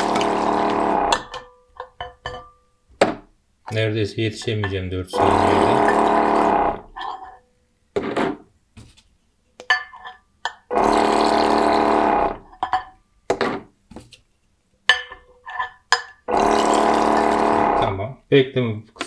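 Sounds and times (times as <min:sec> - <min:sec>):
filling machine pump humming: 0:00.0 - 0:01.3, 0:05.2 - 0:06.9, 0:10.7 - 0:12.4, 0:16.3 - 0:17.9
glass bottles clinking: 0:00.0 - 0:02.6, 0:09.6 - 0:10.7, 0:12.5 - 0:13.0, 0:14.9 - 0:17.4.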